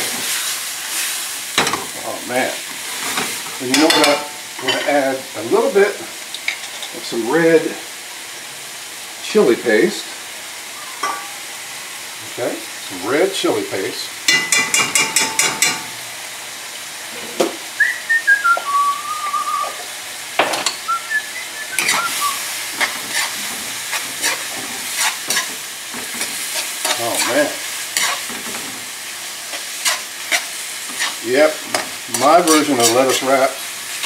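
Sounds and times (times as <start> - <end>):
meat sizzling in a pan: 0.0 - 34.0
ringing taps on pan: 11.0 - 11.4, 14.3 - 15.9
spatula scraping and knocking pan: 21.8 - 22.1, 22.7 - 28.8, 29.5 - 33.3.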